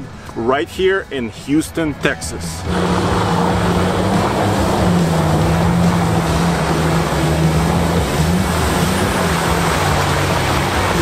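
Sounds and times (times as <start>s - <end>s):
truck engine running under load: 2.6s - 11.0s
tyres churning and splashing: 2.6s - 11.0s.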